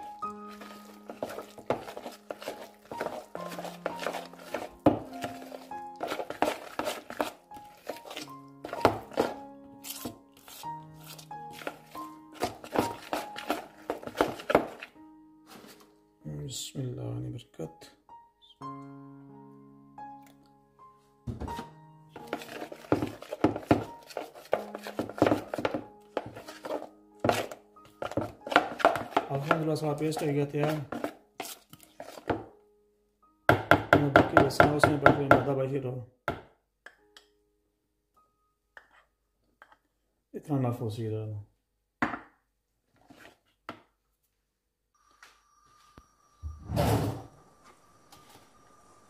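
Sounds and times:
hand mixing batter in a bowl: 0.0s - 15.8s, 22.2s - 32.4s
background music of held notes: 0.0s - 36.0s.

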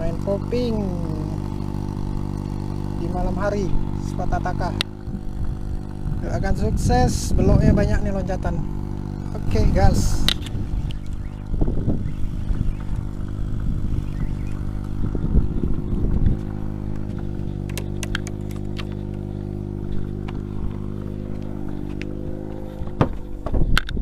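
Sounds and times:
boat engine running: 0.0s - 24.0s
sharp clicks and knocks: 16.9s - 19.2s.

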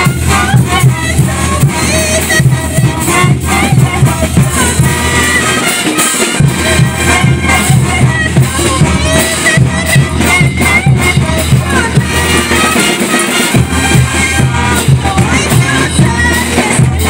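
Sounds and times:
brass melody: 0.0s - 17.0s
cymbals: 0.0s - 17.0s
snare drums: 0.0s - 17.0s
bass drum beat: 6.4s - 12.6s, 13.6s - 17.0s.

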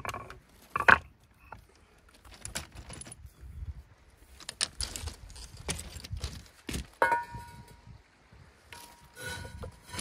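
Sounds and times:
stone clacking on stone: 0.0s - 1.6s
pebbles crunching underfoot: 4.2s - 7.0s.

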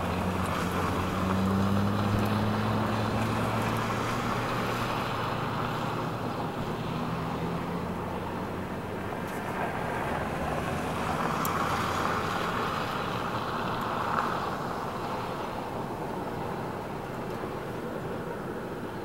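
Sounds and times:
vehicle tyre and road noise: 0.0s - 19.0s.

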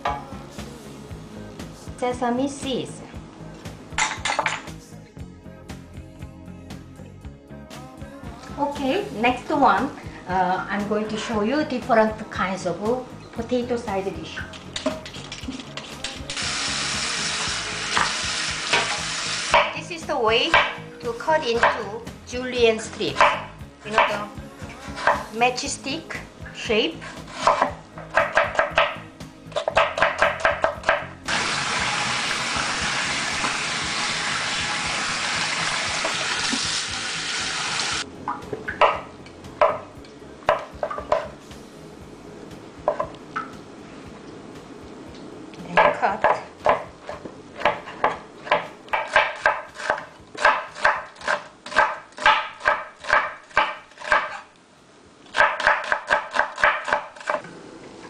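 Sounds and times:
knife chopping on cutting board: 23.2s - 24.2s, 27.3s - 31.1s, 45.8s - 54.4s, 55.4s - 57.4s.

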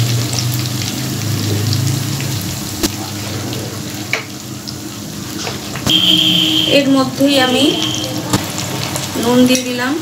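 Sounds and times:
water pouring into pan: 0.0s - 5.9s
paste sizzling in hot oil: 0.0s - 10.0s.

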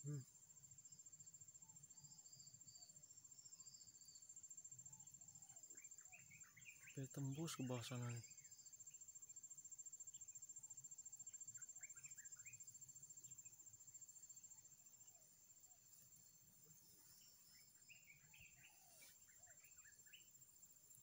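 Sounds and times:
high-pitched insect trill: 0.0s - 21.0s
short bird chirps: 17.2s - 20.3s.

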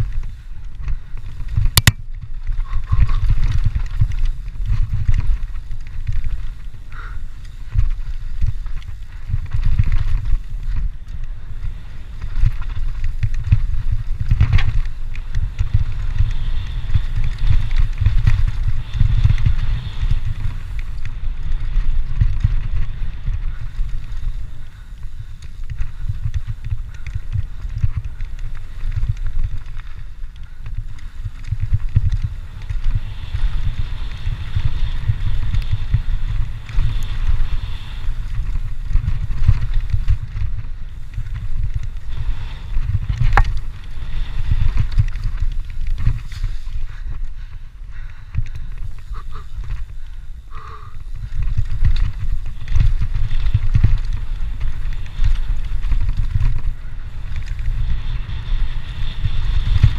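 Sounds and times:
bike knocking and rattling: 0.0s - 59.9s
bike tyres rolling over dirt: 0.0s - 59.9s
wind rumble on microphone: 0.0s - 59.9s
sharp click: 1.8s - 2.0s.

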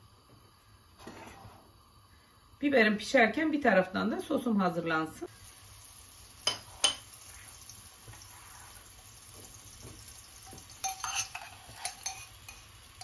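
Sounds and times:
water hissing in a pan: 4.2s - 13.0s
metal spoon scraping a pot: 10.8s - 12.8s.

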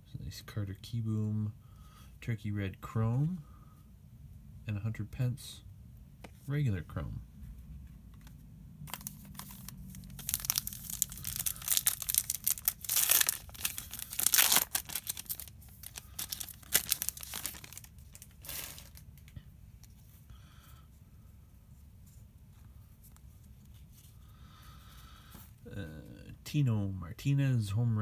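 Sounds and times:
plastic wrapper tearing and crinkling: 8.8s - 19.4s.

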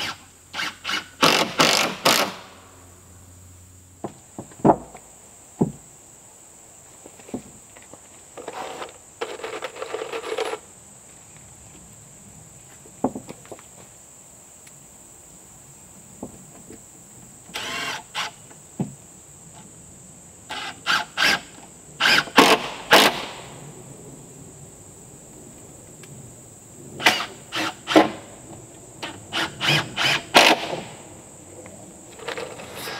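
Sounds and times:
cordless drill driving screws: 0.0s - 2.5s, 17.5s - 18.4s, 22.0s - 23.1s, 29.0s - 30.7s
knocks of wood: 4.0s - 5.0s, 5.6s - 5.8s, 13.0s - 13.6s.

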